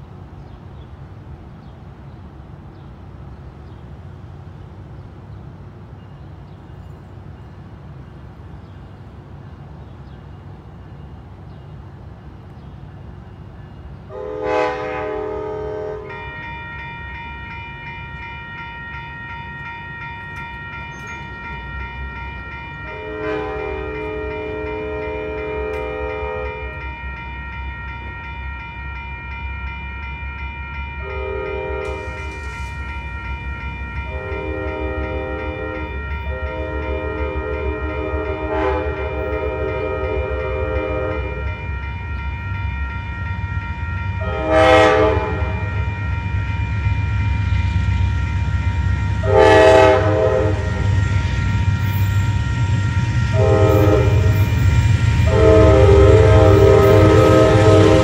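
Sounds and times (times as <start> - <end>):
train rumble: 0.0 - 58.0
train horn blasts: 14.1 - 58.0.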